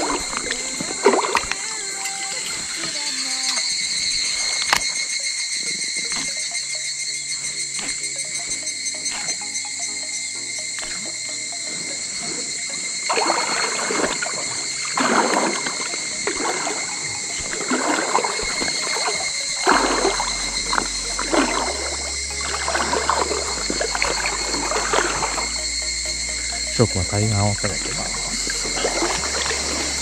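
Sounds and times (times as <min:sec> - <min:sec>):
water sloshing: 0:00.0 - 0:06.6, 0:10.6 - 0:30.0
insect drone: 0:00.0 - 0:30.0
bass line background music: 0:06.1 - 0:30.0.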